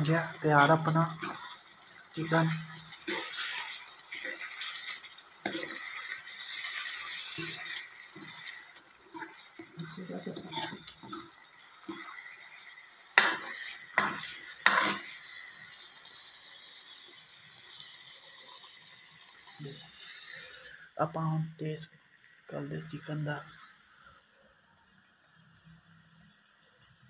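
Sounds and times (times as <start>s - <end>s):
gravy hissing: 0.0s - 26.8s
ladle scraping metal pan: 10.4s - 11.3s, 13.2s - 15.1s.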